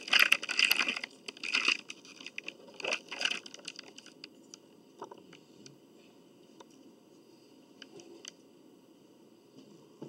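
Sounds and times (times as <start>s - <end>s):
food wrappers crinkling: 0.0s - 4.3s.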